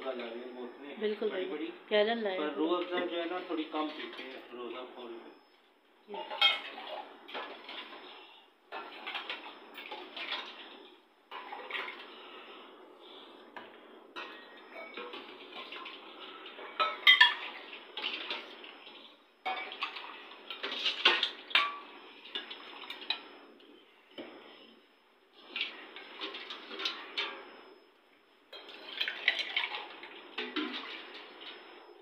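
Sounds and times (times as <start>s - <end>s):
steel mugs and ladle clinking: 6.2s - 7.9s, 14.2s - 18.4s.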